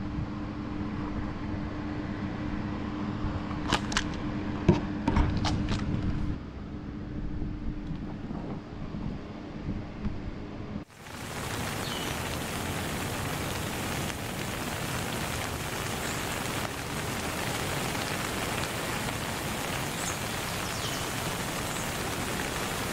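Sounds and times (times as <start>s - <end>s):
steady rain-like hiss: 10.9s - 22.9s.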